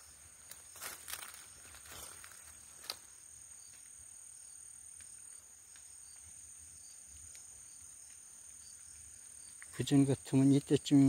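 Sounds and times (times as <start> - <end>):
footsteps crunching on dry leaves: 0.0 - 3.2
insects trilling: 0.0 - 11.0
twig snapping: 2.1 - 3.1.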